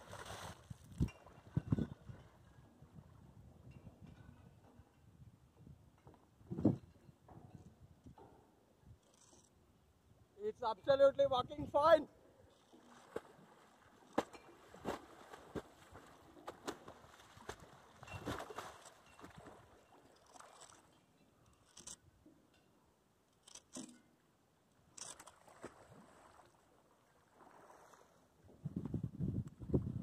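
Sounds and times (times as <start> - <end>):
water splashing and sloshing: 0.0 - 5.0, 12.4 - 22.5, 23.4 - 28.8.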